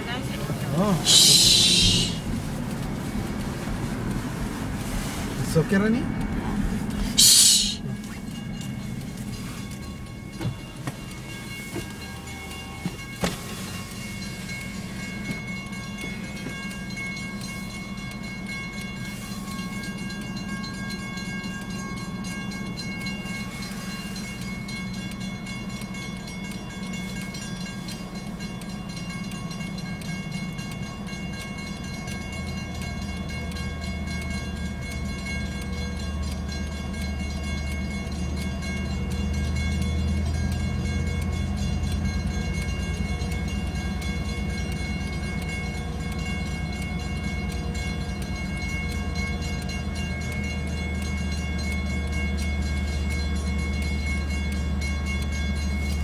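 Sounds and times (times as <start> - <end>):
locomotive engine drone: 0.0 - 56.0
low hum: 1.0 - 5.4
steady ringing tones: 7.1 - 56.0.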